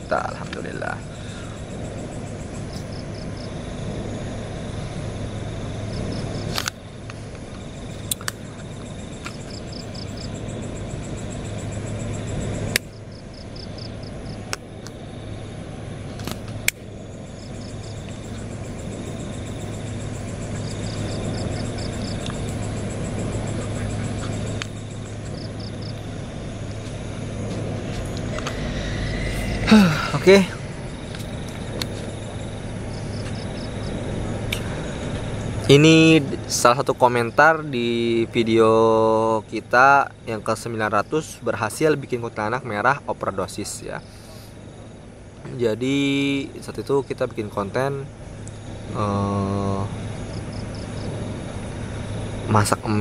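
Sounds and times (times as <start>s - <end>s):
low rumble and hum: 0.0s - 53.0s
sharp clicks: 8.1s - 8.4s.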